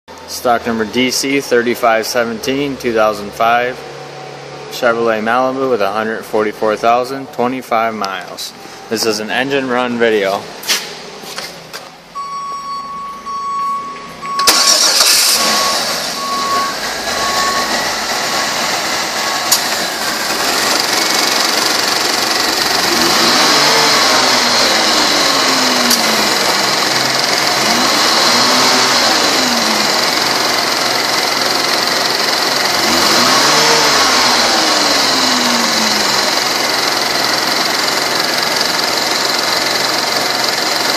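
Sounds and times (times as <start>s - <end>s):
car warning chime beeping: 12.1s - 19.5s
car engine starting and revving: 13.7s - 40.9s.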